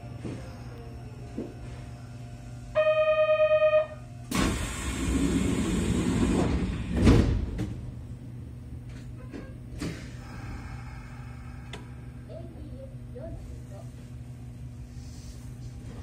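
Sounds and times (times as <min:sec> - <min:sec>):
train low hum: 0:00.0 - 0:16.0
pulsing electronic buzzer: 0:02.7 - 0:04.0
train doors closing thud: 0:06.2 - 0:07.8.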